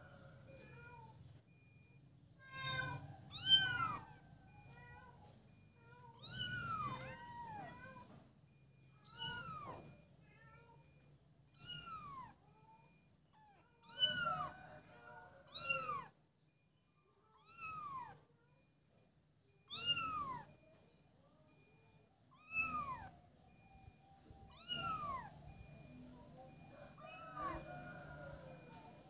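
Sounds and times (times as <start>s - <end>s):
kitten meowing: 2.5s - 5.3s, 6.1s - 8.1s, 9.0s - 10.7s, 11.5s - 12.4s, 13.4s - 14.6s, 15.5s - 16.1s, 17.4s - 18.2s, 19.7s - 20.5s, 22.3s - 23.2s, 24.5s - 25.4s.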